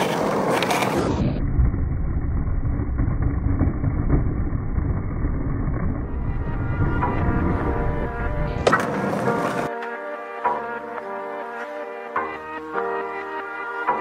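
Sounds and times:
skateboard clacks: 0.0 - 1.0, 8.6 - 9.9
skateboard wheels rolling on asphalt: 0.0 - 10.0.

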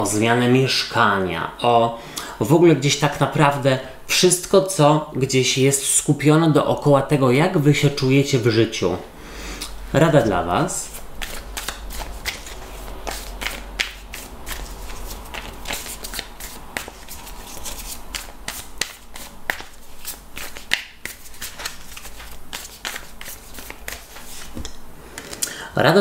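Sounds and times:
cards being shuffled: 10.8 - 25.4.

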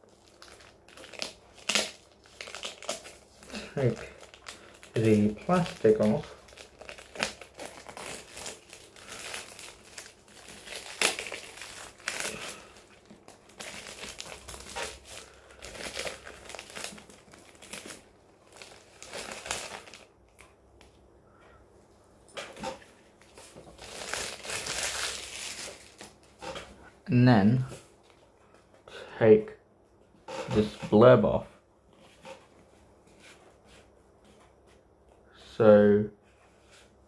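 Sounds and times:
plastic shrink-wrap crinkling: 0.0 - 20.4, 23.3 - 26.5.

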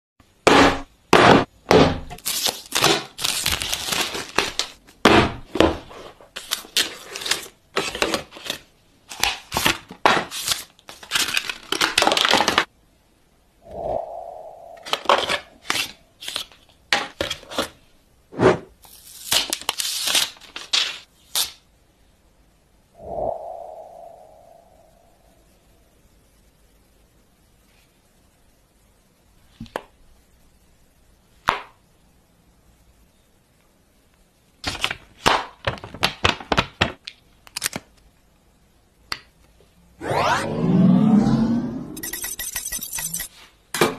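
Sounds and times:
plastic wrap crinkling and tearing: 2.2 - 4.8, 6.4 - 12.6, 18.8 - 21.5
rising sweep: 13.6 - 15.1, 23.0 - 25.3, 40.0 - 43.3
low ringing tone: 40.0 - 43.3.

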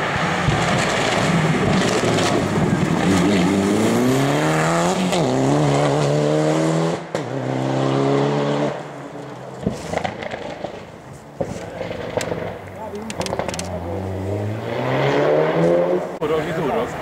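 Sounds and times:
rally car accelerating past: 0.0 - 8.9, 14.1 - 16.2.

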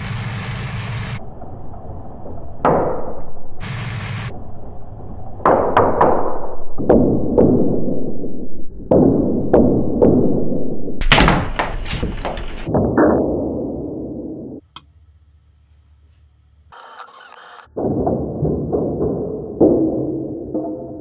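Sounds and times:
rotor blades whirring: 0.0 - 2.6, 3.6 - 4.3, 16.5 - 17.8.

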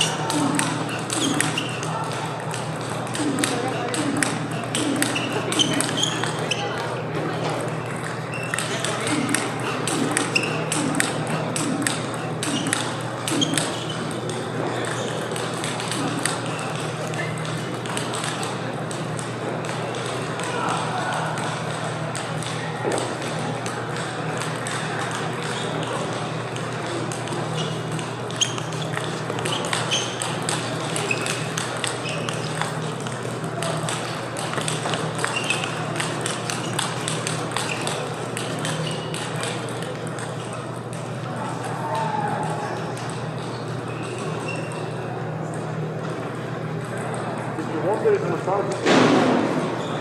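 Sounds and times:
indistinct voices: 0.0 - 18.7
table tennis balls clicking: 0.0 - 48.9
steady low hum: 0.0 - 50.0.

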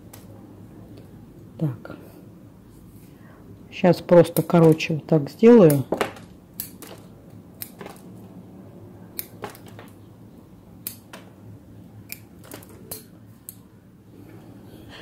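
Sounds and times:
pruning scissors snipping: 6.6 - 6.9, 7.6 - 8.0, 9.1 - 9.6, 10.8 - 11.2.

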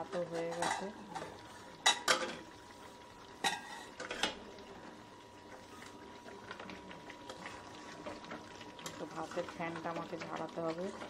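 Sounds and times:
metal utensils clinking on pot: 0.1 - 2.4, 3.4 - 4.4.

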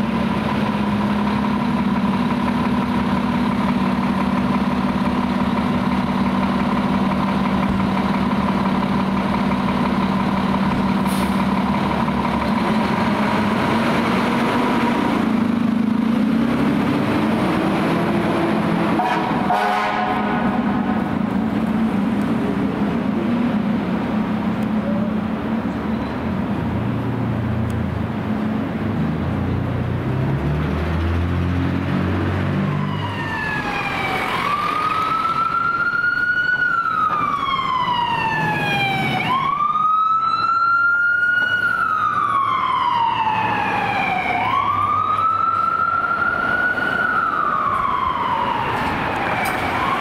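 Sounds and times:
heavy vehicle engine rumble: 0.0 - 50.0
electronic siren wailing: 32.7 - 50.0.

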